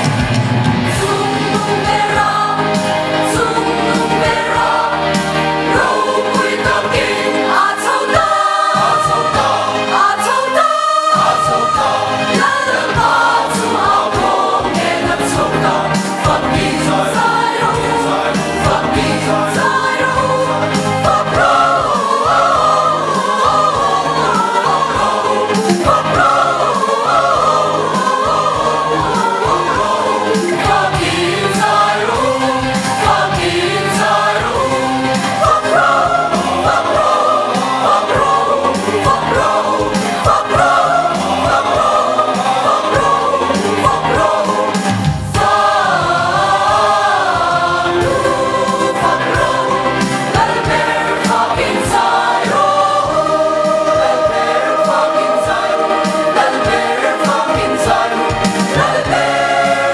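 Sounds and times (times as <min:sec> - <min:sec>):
choir singing a hymn: 0:00.0 - 0:59.9
instrumental accompaniment: 0:00.0 - 0:59.9.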